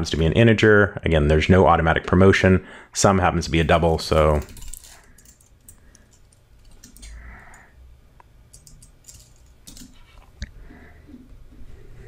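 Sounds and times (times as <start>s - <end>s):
computer keyboard keystrokes: 6.7s - 7.1s.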